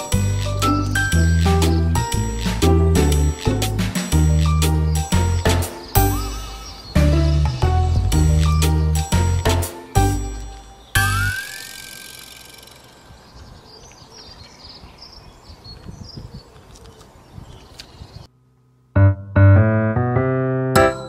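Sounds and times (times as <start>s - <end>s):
piano tune with steady beat: 0.0s - 11.1s, 19.0s - 21.0s.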